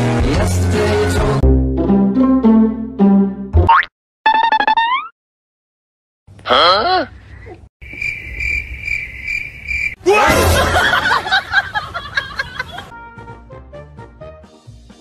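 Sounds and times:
pulsing cricket-like chirping: 7.8s - 10.0s
snickering laughter: 10.6s - 12.9s.

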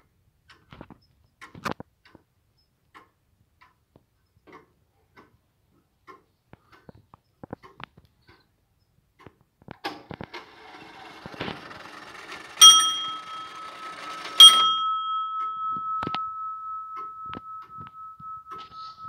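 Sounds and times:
clock mechanism whirring and clicking: 9.9s - 15.8s
clock bell ringing: 10.4s - 19.0s.

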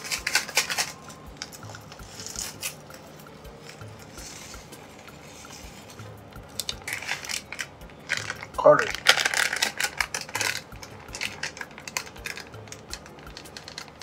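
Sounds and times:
plastic packet crinkling: 0.0s - 3.0s, 5.9s - 14.0s
dried herbs rustling: 0.0s - 14.0s
faint background music: 0.0s - 14.0s.

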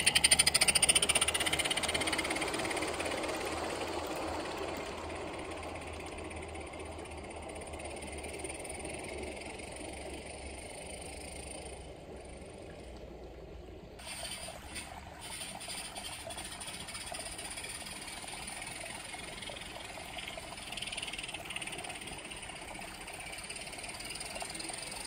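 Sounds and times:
model steam locomotive running: 0.0s - 25.0s.

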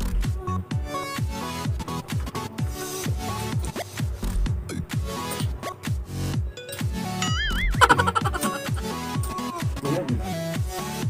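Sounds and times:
electronic music with deep bass: 0.0s - 11.0s.

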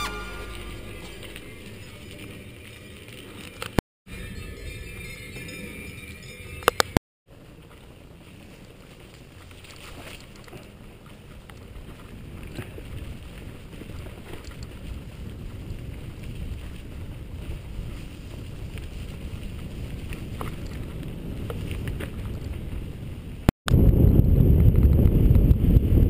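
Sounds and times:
wind buffeting microphone: 10.6s - 26.0s.

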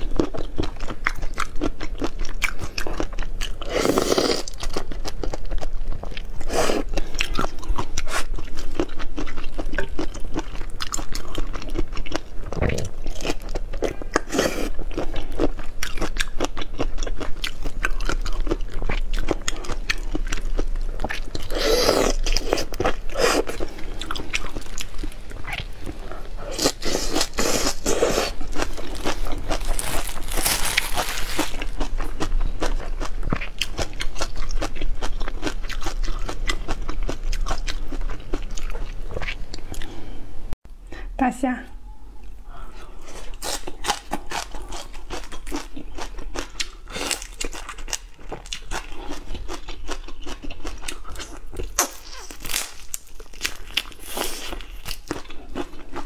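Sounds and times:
crunchy chewing: 0.0s - 40.1s, 42.2s - 56.0s.

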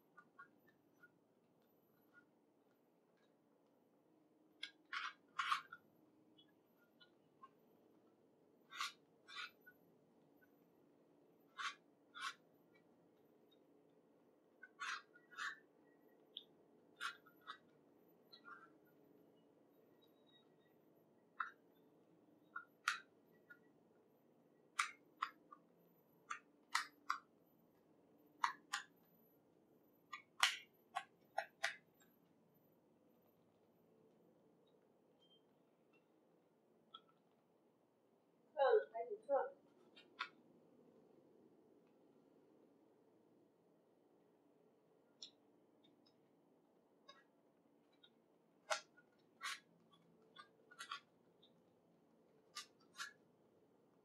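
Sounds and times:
plastic puzzle clicking: 22.5s - 23.6s, 26.2s - 27.3s, 28.4s - 29.0s, 30.1s - 31.9s, 47.9s - 51.1s.

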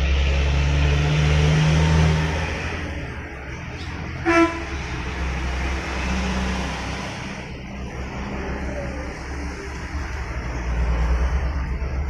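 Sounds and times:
vehicle engine rumble: 0.0s - 12.0s
short horn toot: 4.2s - 4.7s.

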